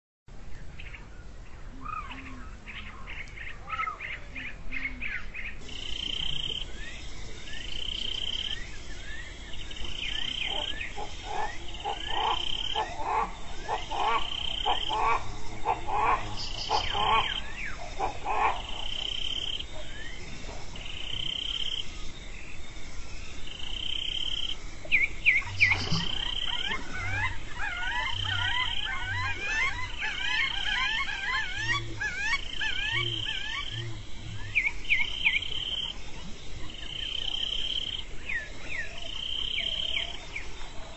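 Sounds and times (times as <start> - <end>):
rapid low croaking: 5.6 - 38.2.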